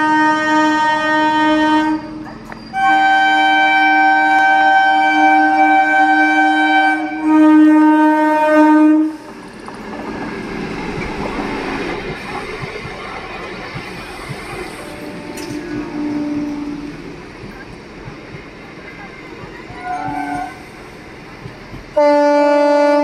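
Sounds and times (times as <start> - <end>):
train horn blasts: 0.0 - 9.3, 14.8 - 17.0, 19.8 - 20.7, 22.0 - 23.0
train rumbling past: 0.0 - 23.0
wheel noise on rails: 0.0 - 23.0.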